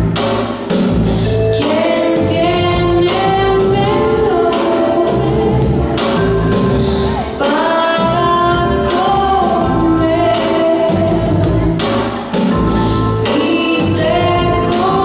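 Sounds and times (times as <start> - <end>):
instrumental backing: 0.0 - 15.0
woman singing: 1.5 - 15.0.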